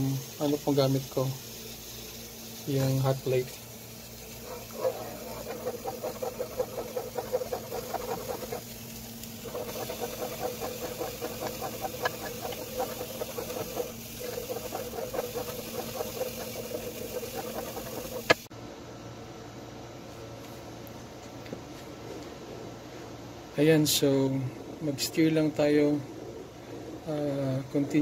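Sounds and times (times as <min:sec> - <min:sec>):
wooden spoon scraping a pot: 0:04.6 - 0:08.7, 0:09.4 - 0:18.5.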